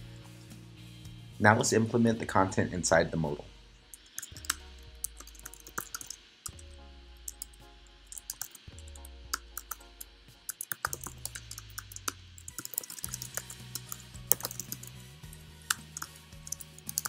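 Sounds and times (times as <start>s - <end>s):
soft background music: 0.0s - 17.0s
computer keyboard typing: 4.0s - 6.6s, 7.2s - 17.0s.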